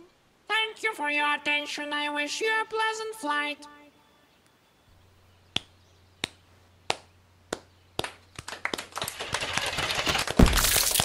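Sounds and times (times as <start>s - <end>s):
faint low hum: 0.0s - 9.9s
single hand claps: 5.5s - 10.4s
applause: 8.0s - 11.0s.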